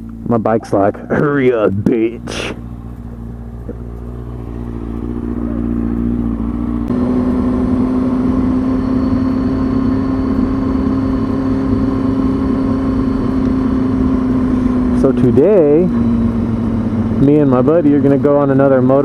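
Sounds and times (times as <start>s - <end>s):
motorcycle engine: 0.0s - 19.0s
wind and road noise: 0.0s - 19.0s.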